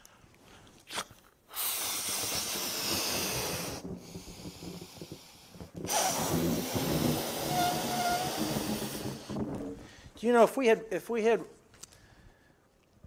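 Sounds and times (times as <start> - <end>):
man blowing up a balloon: 0.7 - 10.1.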